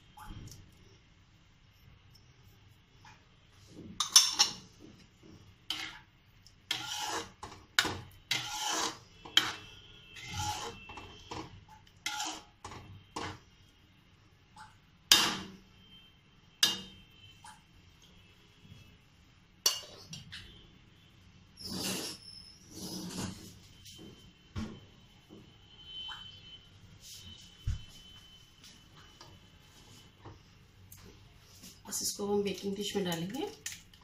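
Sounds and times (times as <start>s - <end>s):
spoon scraping metal pot: 5.7s - 6.0s, 6.7s - 13.4s, 21.6s - 23.5s.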